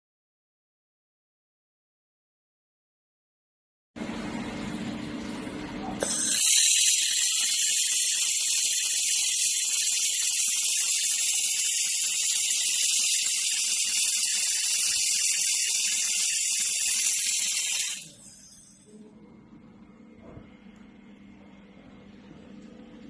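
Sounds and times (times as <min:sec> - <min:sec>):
laser welding hiss: 0:06.0 - 0:18.9.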